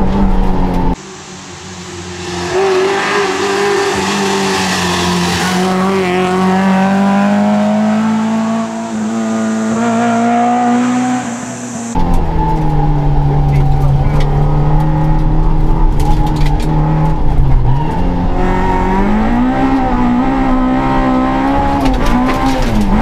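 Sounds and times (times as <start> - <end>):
rally car engine accelerating past: 1.9 - 11.6.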